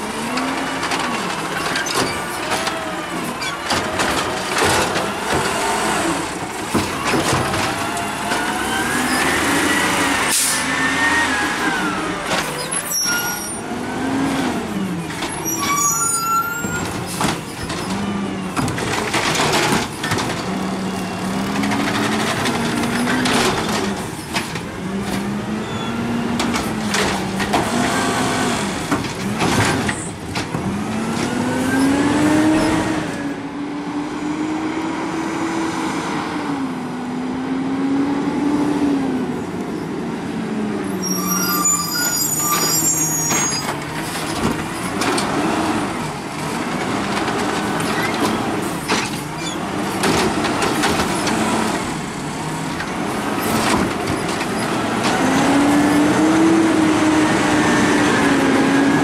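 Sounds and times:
garbage truck engine revving: 0:00.0 - 0:39.5, 0:40.5 - 0:59.0
air brakes hissing: 0:10.3 - 0:10.7.

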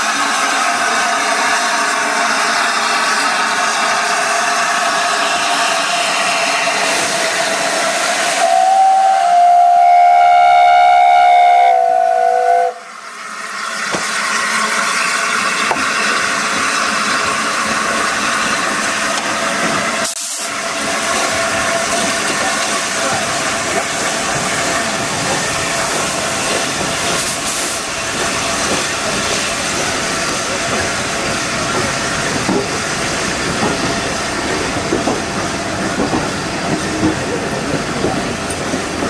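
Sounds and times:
steam locomotive hissing: 0:00.0 - 0:39.0
steam whistle: 0:08.3 - 0:12.9.

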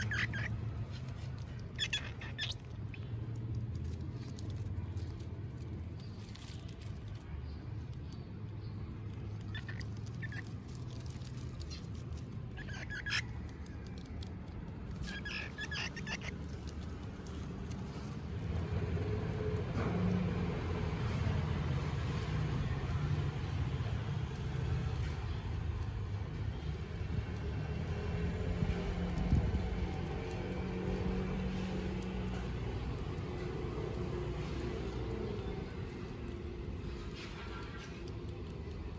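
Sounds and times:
squirrels squeaking: 0:00.0 - 0:05.2, 0:07.4 - 0:18.2
low background rumble: 0:00.0 - 0:38.9.

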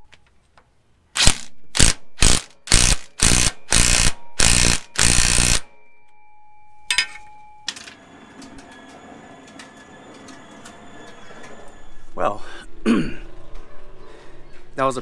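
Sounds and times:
faint steady tone: 0:03.6 - 0:12.6.

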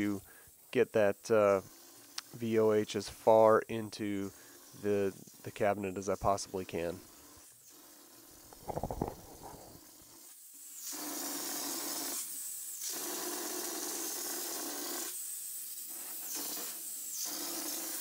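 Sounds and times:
texture sprayer hissing: 0:04.2 - 0:18.0
low rattle: 0:08.5 - 0:09.8.

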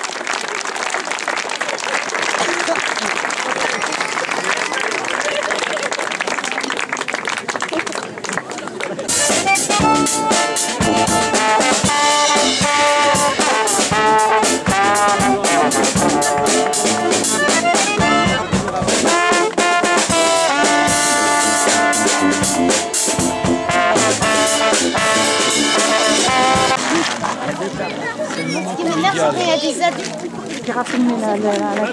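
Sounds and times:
drum kit beat: 0:09.1 - 0:27.3
brass band playing: 0:09.1 - 0:27.9.

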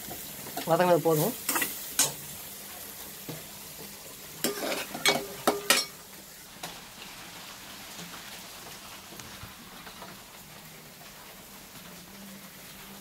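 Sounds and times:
low sizzle: 0:00.0 - 0:13.0
ladle scraping metal pan: 0:04.4 - 0:05.9.

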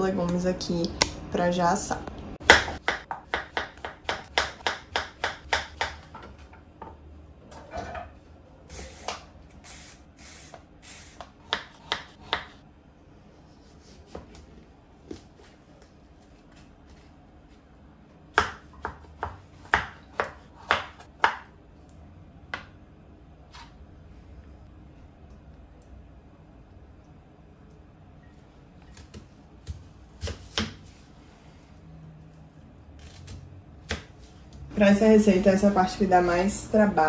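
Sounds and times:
knife chopping on cutting board: 0:02.4 - 0:06.3, 0:11.2 - 0:12.6, 0:18.4 - 0:21.5.

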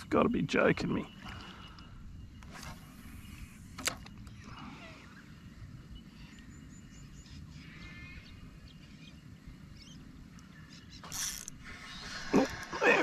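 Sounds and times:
faint animal calls: 0:04.3 - 0:05.4.

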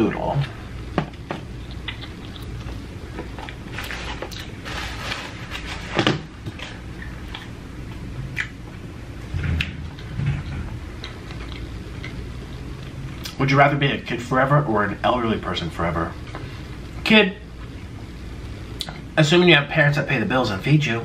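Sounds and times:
chewing with mouth smacks: 0:01.6 - 0:03.6, 0:07.0 - 0:07.6, 0:08.3 - 0:08.6, 0:09.6 - 0:13.4.

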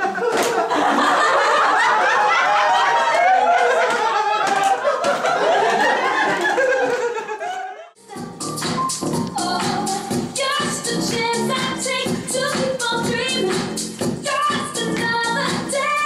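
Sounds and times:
group of people laughing and chattering: 0:00.0 - 0:08.0.

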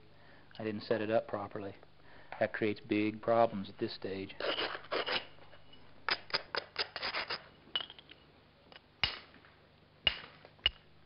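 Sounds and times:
stone scraping and clicking on stone: 0:04.4 - 0:09.2.

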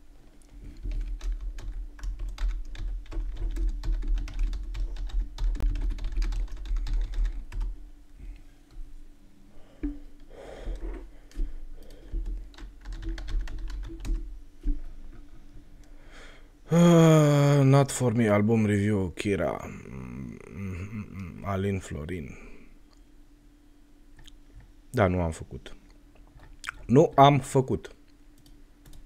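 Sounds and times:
typing on a computer keyboard: 0:00.8 - 0:07.7, 0:11.3 - 0:14.3, 0:28.4 - 0:29.0.

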